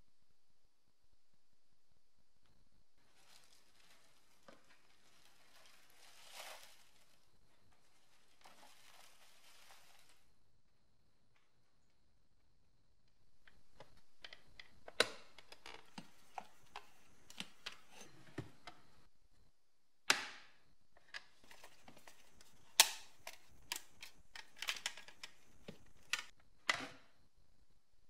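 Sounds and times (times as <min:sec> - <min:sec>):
plastic snaps: 0:21.2 - 0:26.8.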